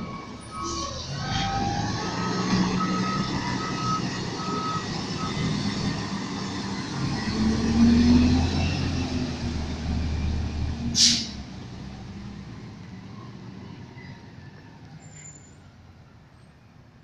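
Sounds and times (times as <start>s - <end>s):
garbage truck diesel engine: 0.0s - 14.4s
air brake hiss: 10.9s - 11.4s.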